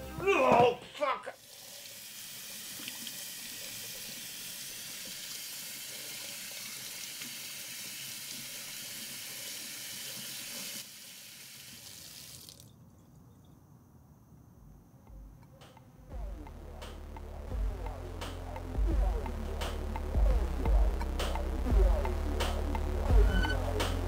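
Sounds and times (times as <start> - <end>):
tap water running into sink: 1.4 - 12.7.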